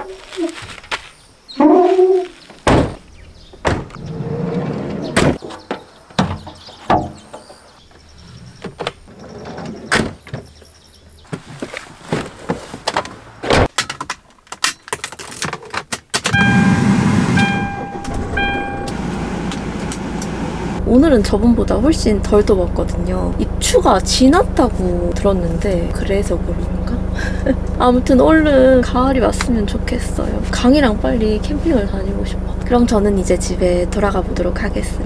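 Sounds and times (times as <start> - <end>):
van doors thunking shut: 2.6 - 3.0, 3.6 - 4.1, 5.0 - 5.4, 16.3 - 20.8
dashboard warning chime beeping: 16.3 - 20.8
engine starting and idling: 16.3 - 35.0.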